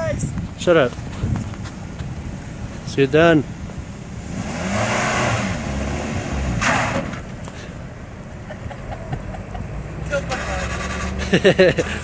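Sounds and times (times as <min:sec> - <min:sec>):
car engine revving: 0:02.5 - 0:07.4, 0:09.3 - 0:12.0.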